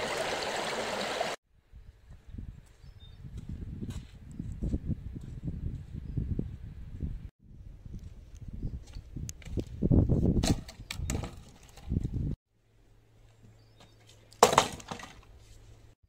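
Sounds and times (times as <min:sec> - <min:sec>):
branches knocking and scraping on dirt: 0:08.8 - 0:12.3, 0:13.3 - 0:15.7
wood cracking onto log: 0:14.3 - 0:15.3.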